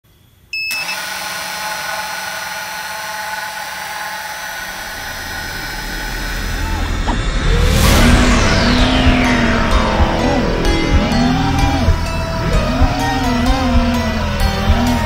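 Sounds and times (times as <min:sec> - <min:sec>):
drone motors whining: 0:00.7 - 0:15.0
low rumble: 0:04.8 - 0:15.0.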